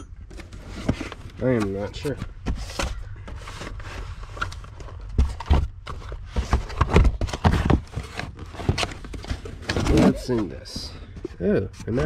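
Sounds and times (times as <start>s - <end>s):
cardboard rustling and scraping: 0.2s - 12.0s
hollow knocks of boxes: 5.0s - 12.0s.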